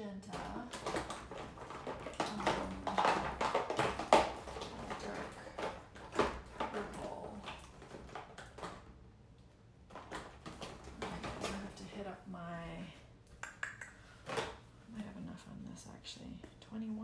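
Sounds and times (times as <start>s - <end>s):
paint tubes clicking and knocking: 0.2s - 11.9s, 13.2s - 14.6s.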